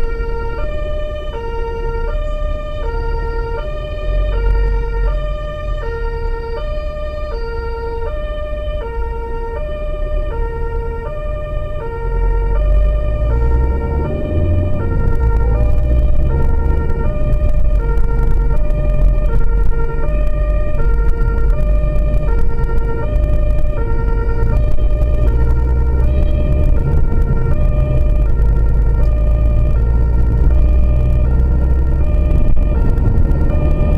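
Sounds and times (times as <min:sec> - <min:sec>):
engine and road noise: 0:00.0 - 0:33.9
two-tone siren: 0:00.0 - 0:33.9.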